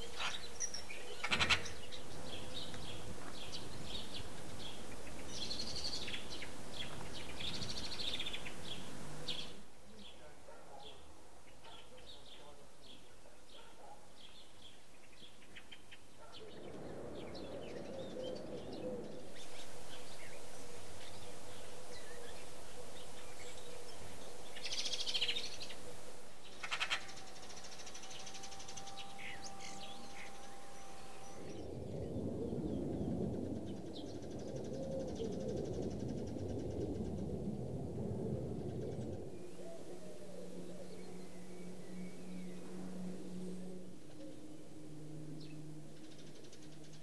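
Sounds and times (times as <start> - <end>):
bird trill: 0.0 - 12.5, 14.7 - 37.3, 38.6 - 47.0
songbirds chirping: 0.0 - 47.0
low rumble: 16.4 - 47.0.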